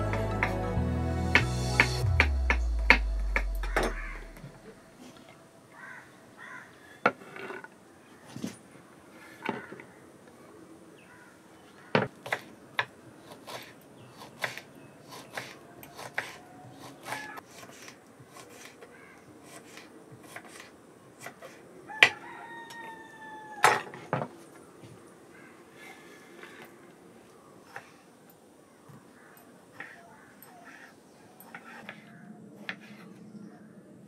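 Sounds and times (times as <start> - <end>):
chicken call: 3.3 - 4.6.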